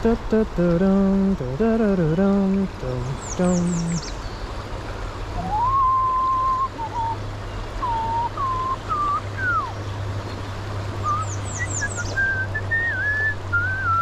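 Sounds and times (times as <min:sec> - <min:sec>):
stream rushing over rocks: 0:00.0 - 0:14.0
man whistling: 0:05.4 - 0:07.2, 0:07.8 - 0:09.7, 0:11.0 - 0:14.0.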